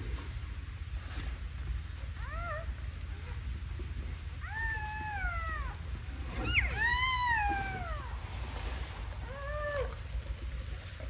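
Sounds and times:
puppies crying: 4.4 - 8.2.

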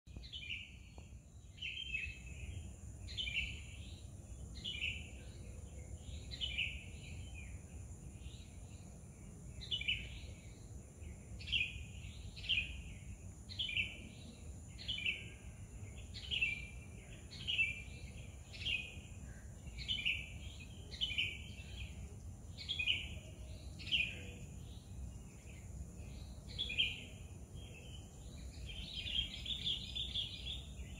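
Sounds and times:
songbird chirping: 0.1 - 30.9.

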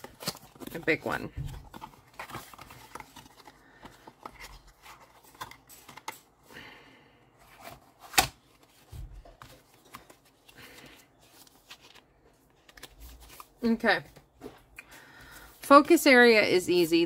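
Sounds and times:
cards being shuffled: 7.6 - 14.6.

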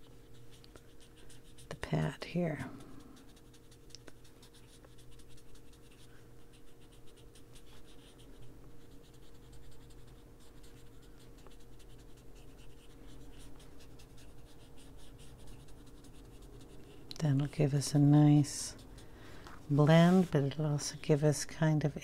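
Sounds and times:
foam tool scratching on paper: 2.7 - 17.7.

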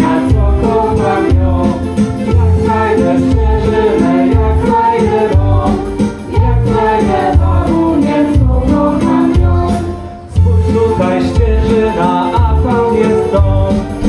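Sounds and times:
singing over repeating bass beat: 0.0 - 14.0.

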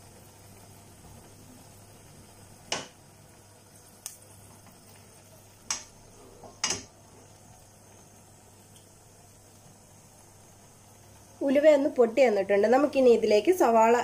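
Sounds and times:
seeds sizzling in oil: 0.0 - 14.0.

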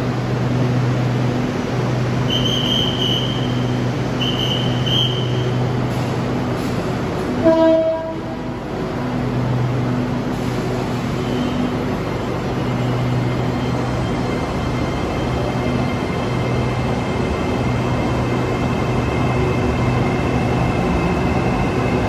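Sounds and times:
train equipment humming: 0.0 - 22.0
train horn: 7.4 - 8.4.

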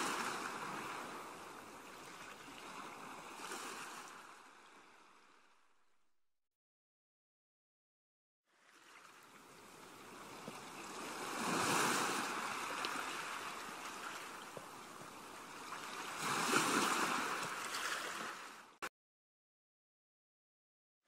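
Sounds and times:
waves breaking on beach: 0.0 - 5.4, 8.5 - 18.8.

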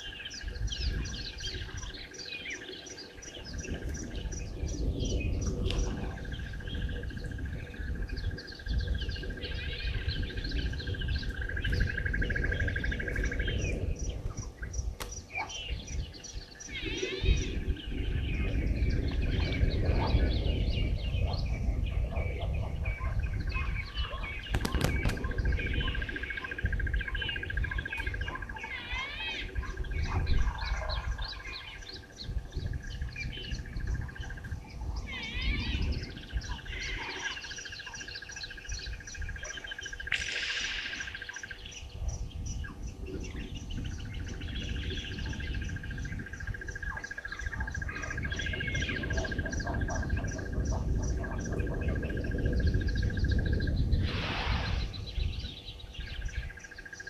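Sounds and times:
low rumbling noise: 0.0 - 56.6
birds chirping and whistling: 0.0 - 57.0
high bird trill: 22.9 - 51.6.

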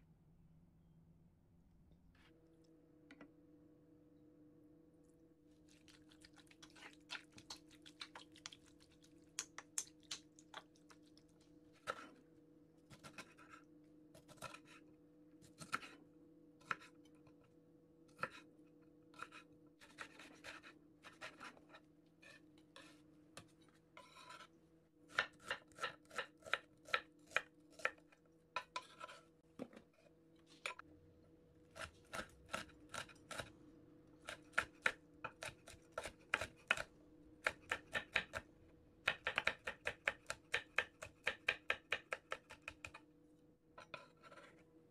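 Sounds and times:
metal spoon scraping a pan: 24.0 - 24.5
knife chopping on wooden board: 34.3 - 38.4, 39.1 - 43.0.

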